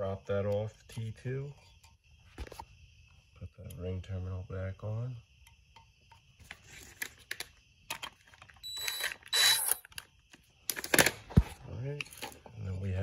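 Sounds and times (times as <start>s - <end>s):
cordless drill motor whine: 8.6s - 10.0s.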